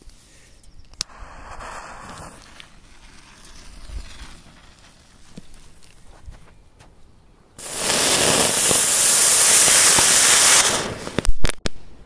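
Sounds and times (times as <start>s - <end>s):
firework hissing: 1.0s - 5.6s, 7.6s - 11.3s
firecracker bangs: 7.6s - 11.6s.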